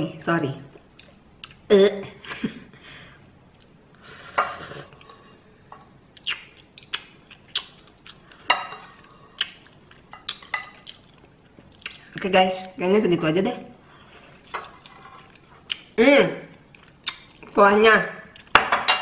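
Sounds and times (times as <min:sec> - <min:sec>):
chopsticks scraping a bowl: 0:14.5 - 0:15.4.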